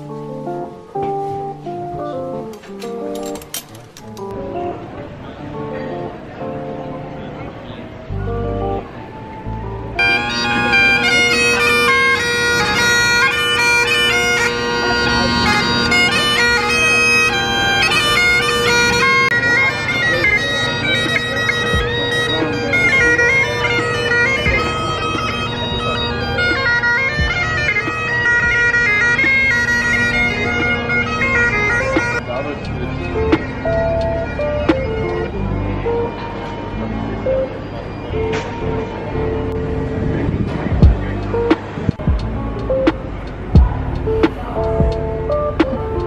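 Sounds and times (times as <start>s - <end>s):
bagpipe drones: 2.0s - 46.0s
bagpipe melody: 8.1s - 42.6s.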